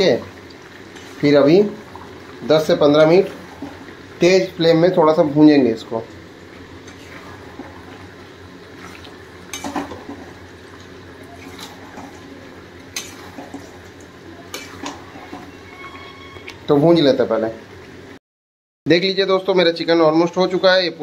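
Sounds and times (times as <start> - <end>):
frying hiss: 0.0 - 18.2
metal ladle scraping a pan: 0.8 - 1.4, 6.8 - 7.7, 12.9 - 13.8, 14.5 - 16.5.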